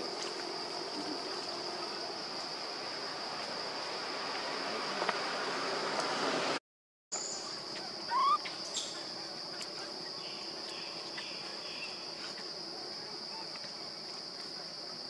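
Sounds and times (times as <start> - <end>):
insects droning: 0.0 - 15.0
short rising squeak call: 8.1 - 8.4.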